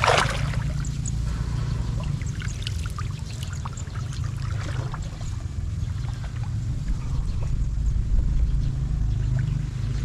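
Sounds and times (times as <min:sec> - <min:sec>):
water trickling and dripping: 0:00.0 - 0:07.0
steady low rumble: 0:00.0 - 0:10.0.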